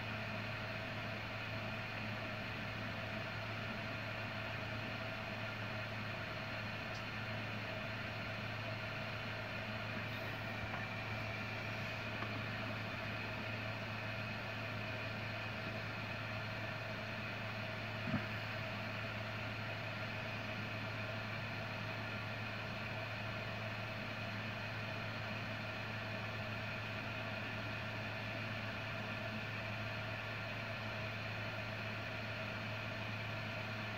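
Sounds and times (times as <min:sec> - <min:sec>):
machine hum: 0:08.7 - 0:20.7.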